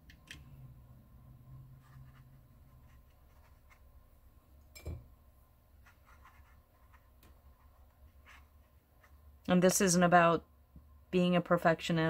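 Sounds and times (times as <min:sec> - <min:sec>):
brush dabbing on wet paper: 0:01.6 - 0:04.2, 0:05.8 - 0:09.4.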